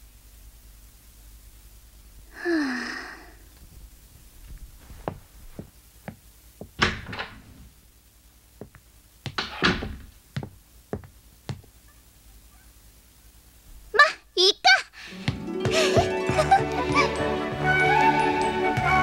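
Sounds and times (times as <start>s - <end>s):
footsteps on wooden floor: 3.7s - 7.7s, 8.6s - 11.7s, 15.1s - 16.7s
door thumping shut: 6.6s - 7.6s, 9.3s - 10.5s.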